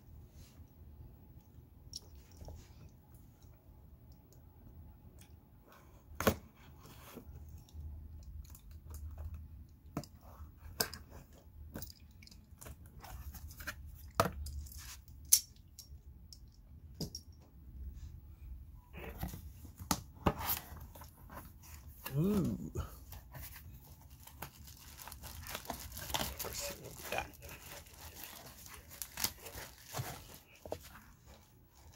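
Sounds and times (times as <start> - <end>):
cardboard tearing and scraping: 23.8 - 31.0.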